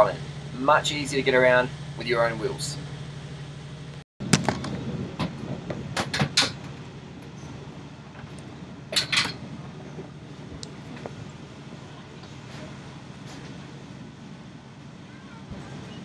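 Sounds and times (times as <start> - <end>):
train carriage running hum: 0.0 - 16.0
knocks and clatters of bed berth: 4.2 - 11.2.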